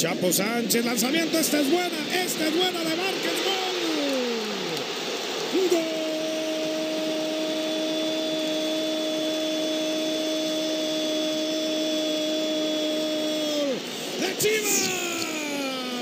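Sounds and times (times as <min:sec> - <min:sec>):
stadium crowd noise: 0:00.0 - 0:16.0
commentator's long goal cry: 0:05.5 - 0:16.0.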